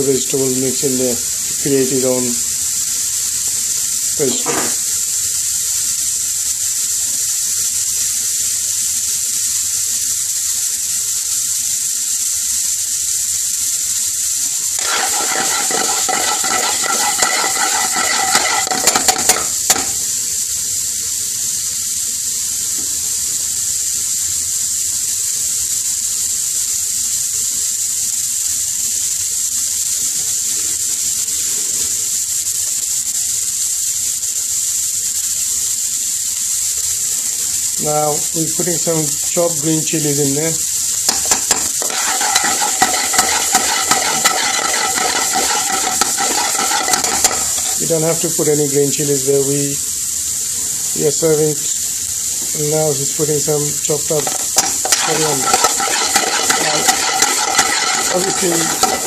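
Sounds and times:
vegetables sizzling in a pan: 0.0s - 59.0s
metal spoon scraping a pan: 14.8s - 20.1s, 41.1s - 48.6s, 53.8s - 59.0s.

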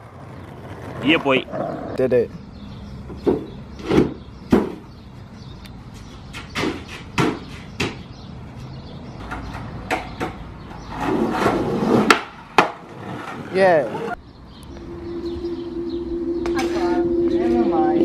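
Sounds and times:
skateboard wheels rolling on concrete: 0.0s - 14.8s
skateboard clacking on concrete: 9.2s - 14.1s.

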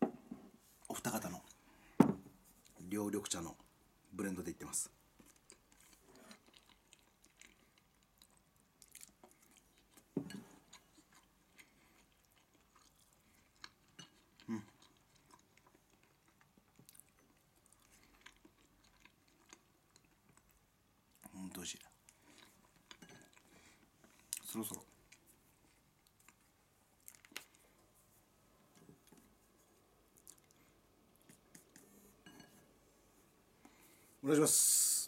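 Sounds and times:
person chewing: 5.2s - 21.3s, 21.9s - 27.8s, 28.7s - 32.5s.

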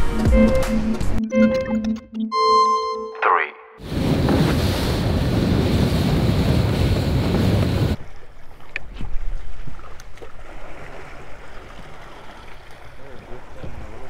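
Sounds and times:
wind buffeting microphone: 3.8s - 8.1s
water rushing past boat: 3.8s - 14.0s
water lapping: 7.8s - 14.0s.

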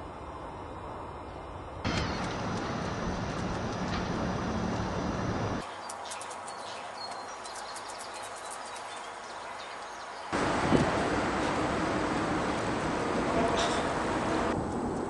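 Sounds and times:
rushing outdoor noise with hum: 0.0s - 15.0s
small birds chirping: 4.5s - 10.4s.

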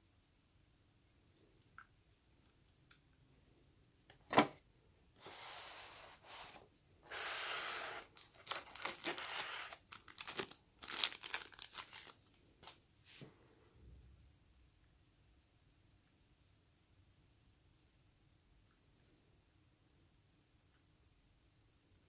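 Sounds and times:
foam packing rustling and scraping: 5.2s - 12.1s.

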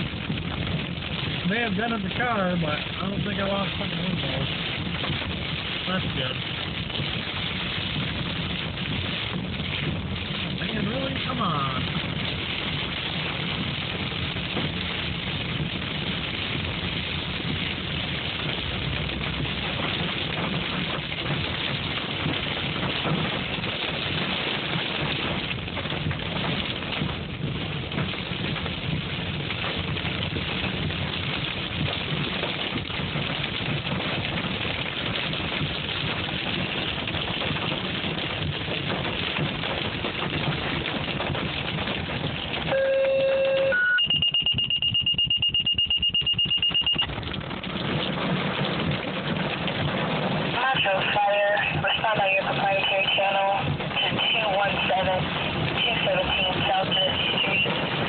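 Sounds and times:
hail and rain on car roof: 0.0s - 58.0s
high-pitched pulsing beep: 42.7s - 47.1s
short electronic tone: 42.7s - 47.1s.

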